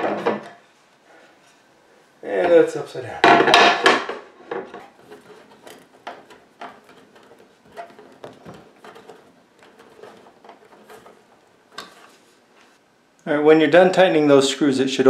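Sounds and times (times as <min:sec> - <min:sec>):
screwdriver clicking and scraping: 0:04.8 - 0:12.2.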